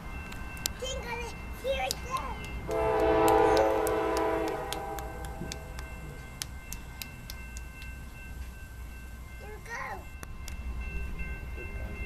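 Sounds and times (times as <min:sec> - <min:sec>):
locomotive air horn blast: 0:02.7 - 0:05.7.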